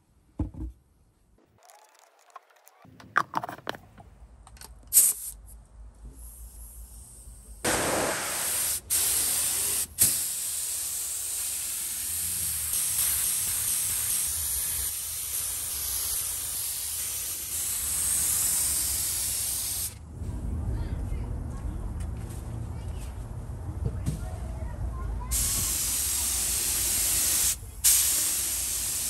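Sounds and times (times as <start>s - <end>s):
spray gun hissing: 7.7s - 20.0s, 25.3s - 29.0s.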